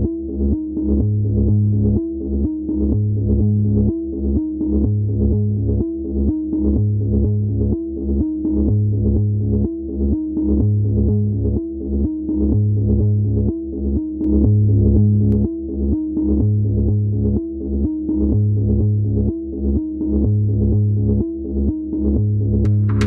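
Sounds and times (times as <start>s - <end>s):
deep bass note: 22.4s - 23.0s.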